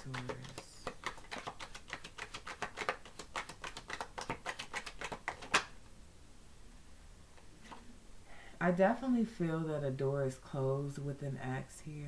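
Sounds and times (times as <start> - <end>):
cards being shuffled: 0.0 - 5.8.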